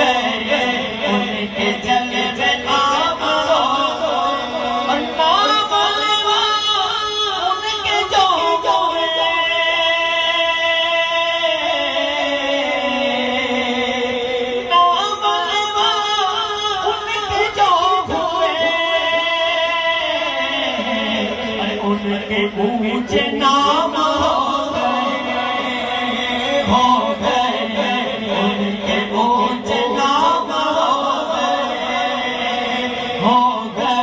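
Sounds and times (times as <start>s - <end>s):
men singing devotional song: 0.0s - 34.0s.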